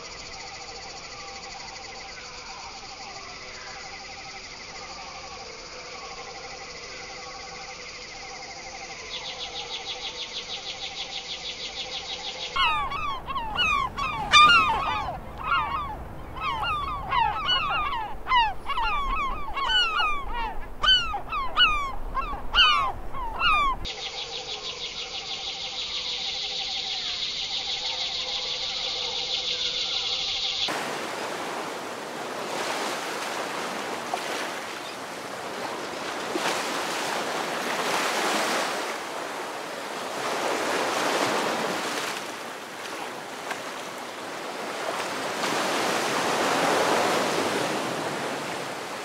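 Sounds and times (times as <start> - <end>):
chorus of animal calls: 12.5 - 23.9.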